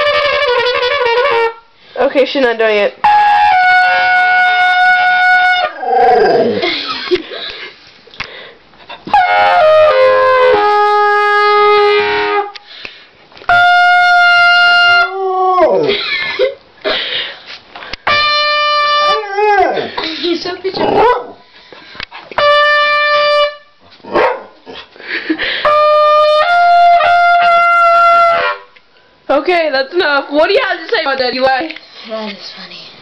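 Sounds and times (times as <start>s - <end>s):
trumpet long notes: 0.0s - 1.8s, 3.0s - 6.1s, 9.1s - 12.7s, 13.5s - 15.5s, 18.0s - 19.6s, 22.4s - 23.8s, 25.6s - 28.8s
dog howling: 5.4s - 6.6s, 19.0s - 19.9s.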